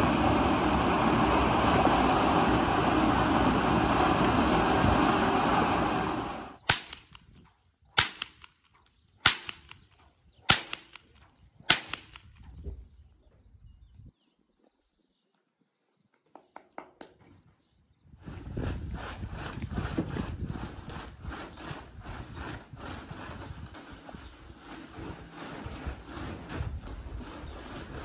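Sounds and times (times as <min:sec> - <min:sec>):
blower fan rushing: 0:00.0 - 0:06.6
whip cracking: 0:06.7 - 0:07.2, 0:08.0 - 0:08.6, 0:09.2 - 0:09.8, 0:10.5 - 0:11.1, 0:11.7 - 0:12.2.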